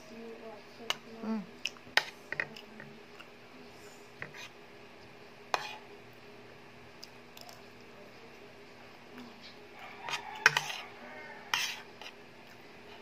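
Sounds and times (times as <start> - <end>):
faint steady hum: 0.0 - 13.0
cutlery scraping on plate: 5.5 - 5.8, 9.4 - 12.2.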